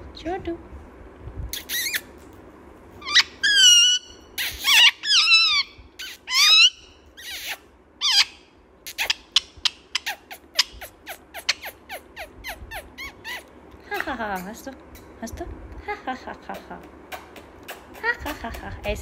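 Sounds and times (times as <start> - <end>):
parakeet squawking: 1.5 - 2.1, 3.0 - 13.5
parakeet chirping: 1.6 - 2.1, 3.0 - 13.5.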